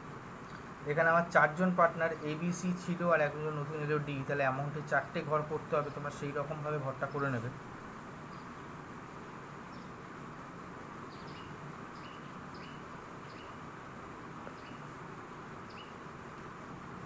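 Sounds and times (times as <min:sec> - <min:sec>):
steady background hiss: 0:00.0 - 0:17.0
faint high-pitched chirps: 0:11.1 - 0:13.6.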